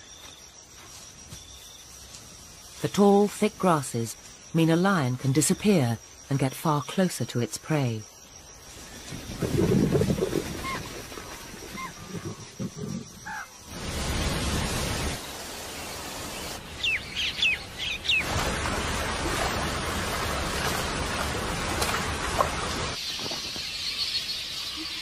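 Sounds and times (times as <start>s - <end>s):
outdoor ambience rush: 10.8s - 23.6s
high falling bird chirps: 15.2s - 18.3s.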